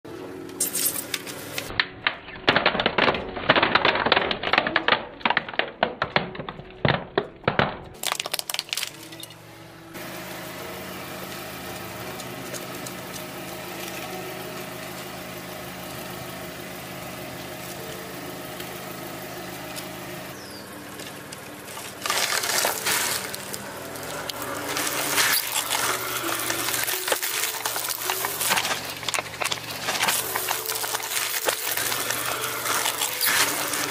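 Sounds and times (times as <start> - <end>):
plastic bottles crackling and bursting: 0.5 - 9.4, 11.5 - 33.9
plastic toy cracking under tyre: 1.6 - 9.3, 21.0 - 33.9.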